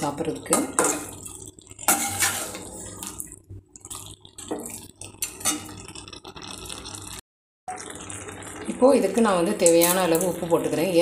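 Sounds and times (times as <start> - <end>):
metal spatula scraping a pan: 1.8 - 3.1.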